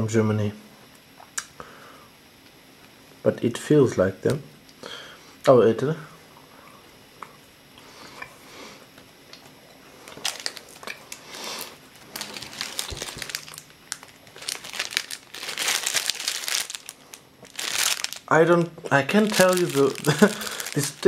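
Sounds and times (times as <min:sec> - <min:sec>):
cellophane wrapper crinkling: 0:10.0 - 0:21.0.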